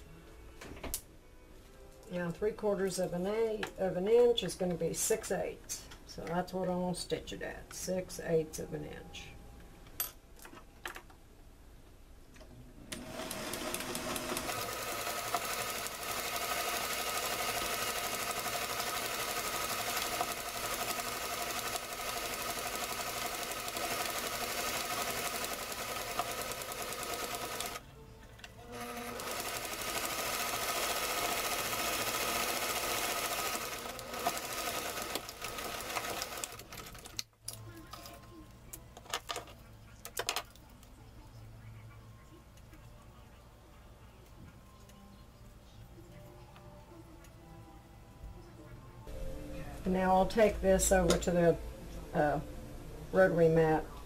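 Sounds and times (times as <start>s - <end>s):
sewing machine stitching: 12.9s - 27.8s, 28.6s - 37.2s.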